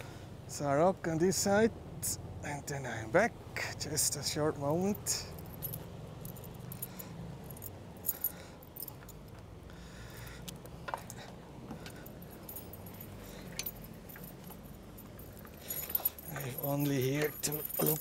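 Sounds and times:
low background rumble: 0.0s - 18.0s
metallic clinks of lock and keys: 4.8s - 9.4s, 11.0s - 18.0s.

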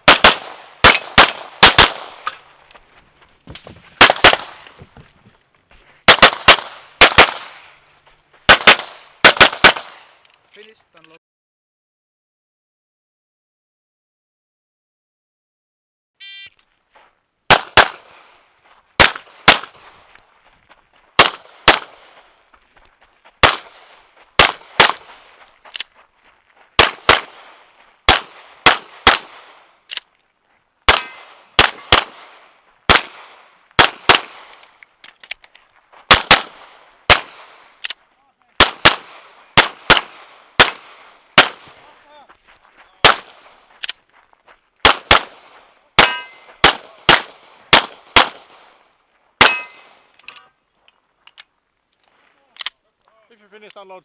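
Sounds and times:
pistol shots: 0.0s - 2.4s, 4.0s - 4.8s, 6.1s - 7.7s, 8.5s - 10.1s, 17.5s - 18.3s, 19.0s - 19.9s, 21.2s - 22.2s, 23.4s - 25.3s, 26.8s - 29.7s, 30.9s - 34.7s, 36.1s - 37.8s, 38.6s - 41.9s, 43.0s - 43.6s, 44.8s - 48.7s, 49.4s - 50.0s
shot timer beep: 16.2s - 16.5s.

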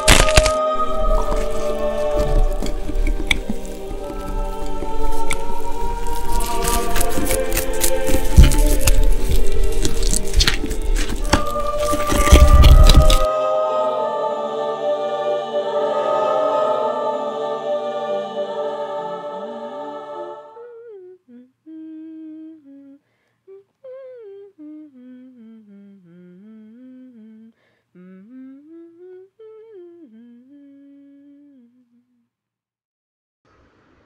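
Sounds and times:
person humming a melody: 0.0s - 17.5s, 19.2s - 32.3s
loud sustained chord: 0.0s - 20.6s.

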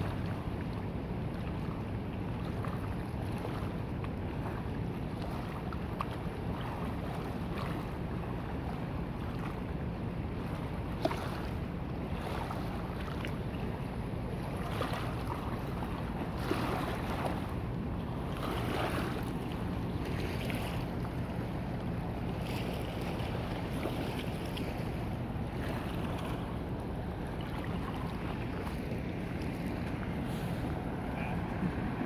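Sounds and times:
wind buffeting microphone: 2.4s - 32.0s
flooded river rushing: 14.3s - 32.0s.

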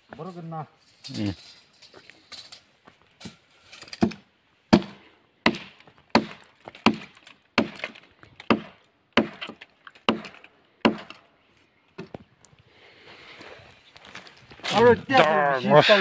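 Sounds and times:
machete chopping into bark: 4.0s - 11.2s.

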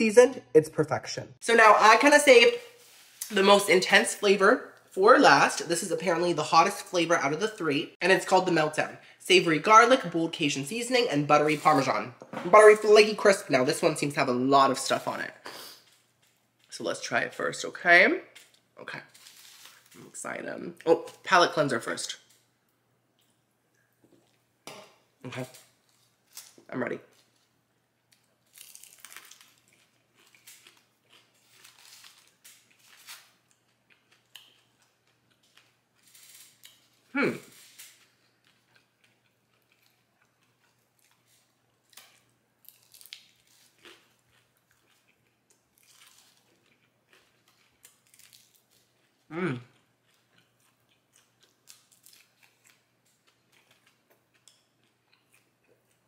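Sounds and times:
crunching chicken wing chewing: 37.6s - 56.0s.

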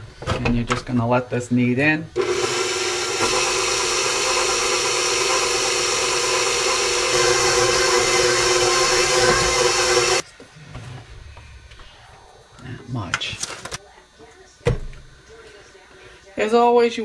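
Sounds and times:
stand mixer motor whine: 2.2s - 10.2s.

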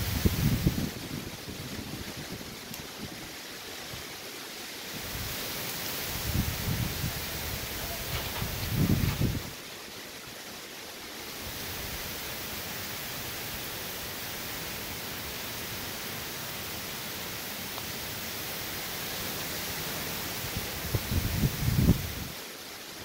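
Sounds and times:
heavy rain falling: 0.0s - 23.0s.

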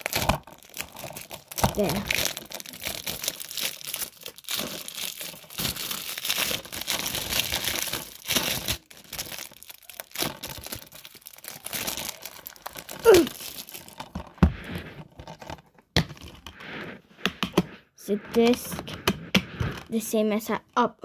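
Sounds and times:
plastic wrap crinkling: 0.0s - 16.6s.

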